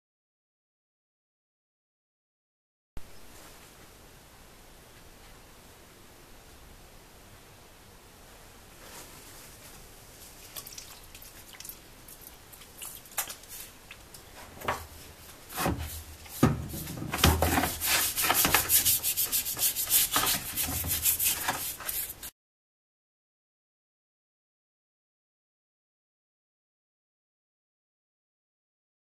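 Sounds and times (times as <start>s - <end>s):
paintbrush scrubbing metal: 14.9s - 22.3s.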